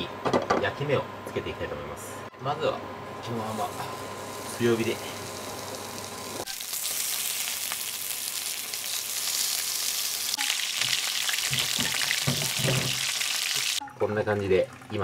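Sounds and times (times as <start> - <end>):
meat sizzling in hot oil: 3.4 - 13.8.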